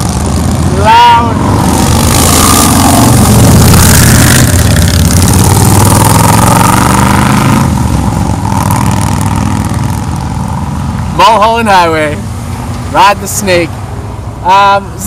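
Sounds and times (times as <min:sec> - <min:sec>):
motorcycles revving past: 0:00.0 - 0:11.0.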